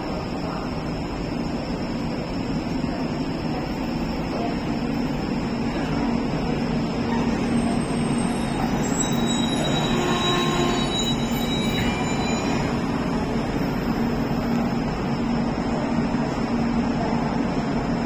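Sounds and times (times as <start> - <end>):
train coaches droning: 0.0 - 18.0
faint high squeaks: 7.2 - 13.0.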